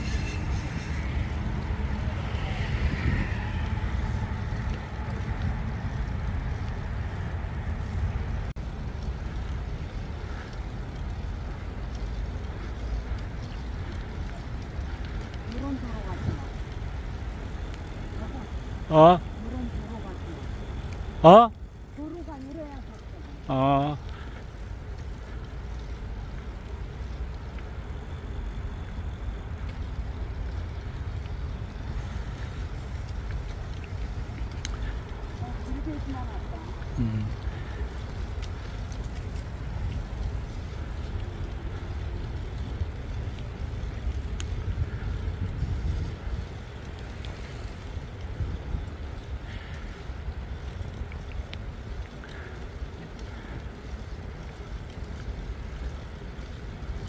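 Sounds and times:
wind on the microphone: 0:00.0 - 0:18.7, 0:30.6 - 0:57.0
bicycle tyre noise on pavement: 0:00.0 - 0:57.0.

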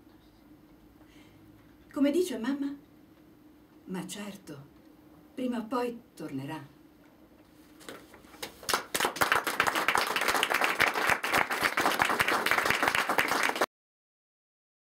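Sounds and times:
audience applauding: 0:08.4 - 0:13.7.

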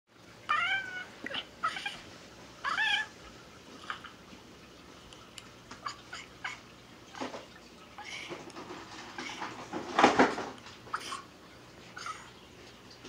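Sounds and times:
cat meowing: 0:00.5 - 0:02.0, 0:02.6 - 0:03.1.

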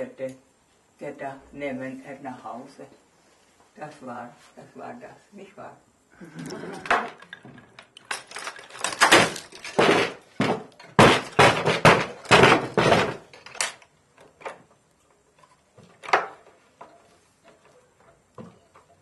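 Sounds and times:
wooden knocking and clattering: 0:06.8 - 0:14.7, 0:15.3 - 0:19.0.

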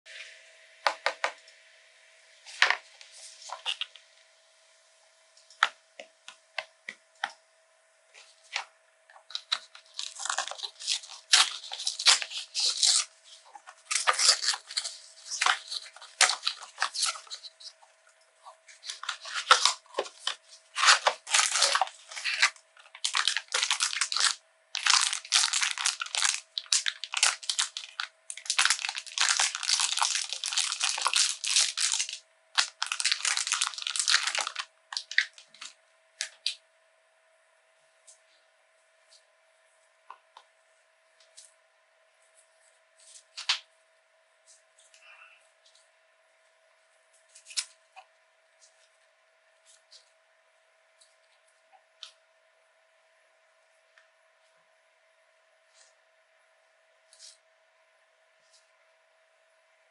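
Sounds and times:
foil bag crinkling: 0:09.3 - 0:17.7, 0:18.7 - 0:36.6
cardboard packaging rustling and tearing: 0:09.3 - 0:17.8, 0:18.5 - 0:35.7.

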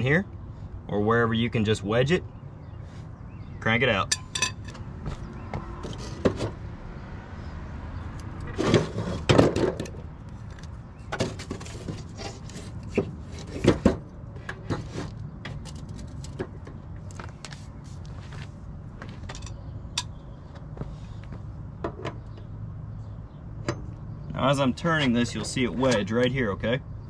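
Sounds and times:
metal taps and clinks: 0:04.1 - 0:04.8, 0:19.2 - 0:20.2.

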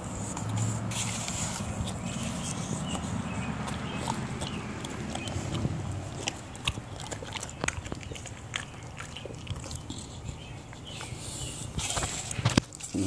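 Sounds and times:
steady low rumble: 0:00.0 - 0:09.4
dog licking and crunching apple: 0:00.0 - 0:13.0.

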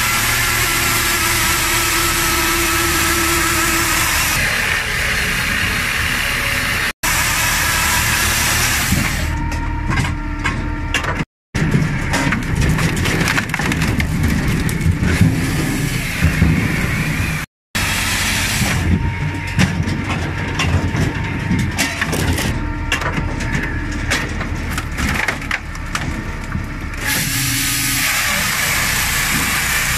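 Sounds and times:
machine drone: 0:00.0 - 0:29.9
wood pieces tumbling: 0:11.6 - 0:15.5, 0:19.2 - 0:27.0
wood splitting cracks: 0:12.1 - 0:15.3.

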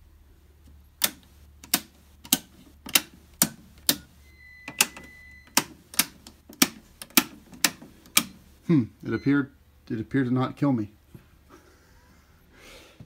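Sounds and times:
circuit breakers clicking on: 0:00.6 - 0:09.5
high electronic beep: 0:04.2 - 0:05.6, 0:09.0 - 0:09.5.

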